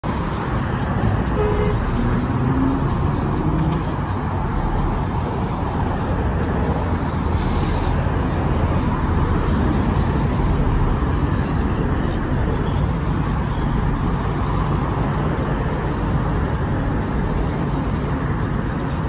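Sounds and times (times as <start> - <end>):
road traffic rumble: 0.0 - 19.0
car passing with tyre hiss: 6.6 - 12.2.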